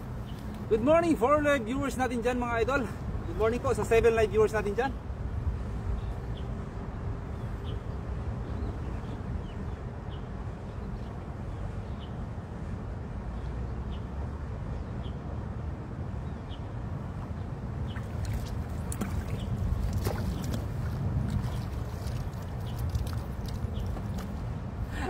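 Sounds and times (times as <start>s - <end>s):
low outdoor rumble: 17.0s - 25.0s.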